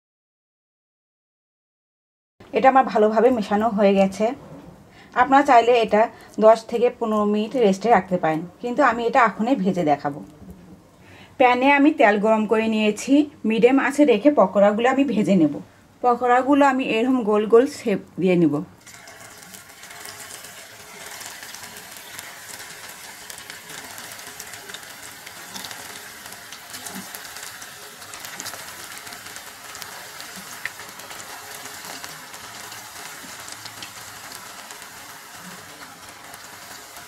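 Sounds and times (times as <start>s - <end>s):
batter deep-frying in oil: 18.8s - 37.0s.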